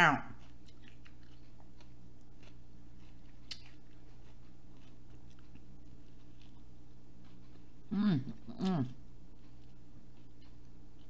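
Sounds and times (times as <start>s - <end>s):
low electrical hum: 0.0s - 11.0s
wet mouth chewing clicks: 0.4s - 5.7s.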